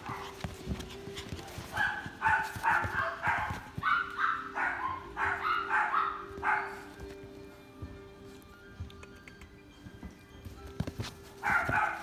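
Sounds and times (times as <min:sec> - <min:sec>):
puppy yapping: 0:01.5 - 0:06.8.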